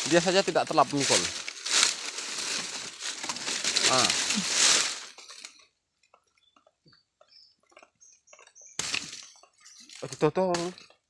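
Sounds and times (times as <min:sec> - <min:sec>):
dry leaves rustling underfoot: 0:00.0 - 0:05.6, 0:08.8 - 0:10.8.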